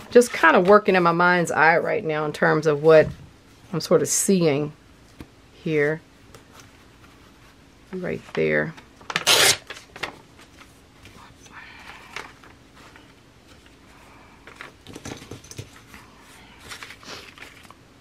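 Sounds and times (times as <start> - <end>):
paper rustling: 15.8 - 17.8.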